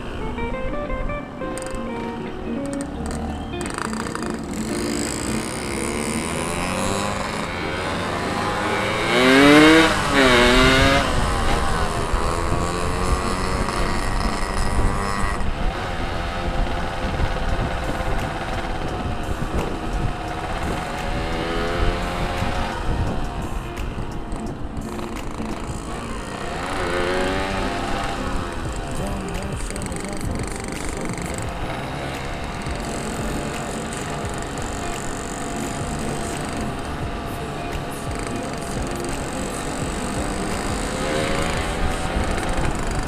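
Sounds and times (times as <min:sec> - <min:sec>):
motorcycle engine revving: 0:00.0 - 0:00.5, 0:01.5 - 0:43.0
wind noise on microphone: 0:03.6 - 0:35.0.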